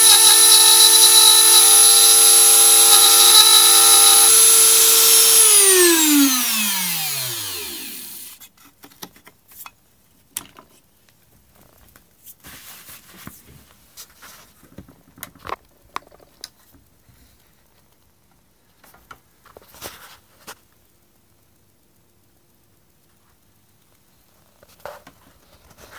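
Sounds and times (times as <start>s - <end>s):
rotary tool spinning down: 0.0s - 8.4s.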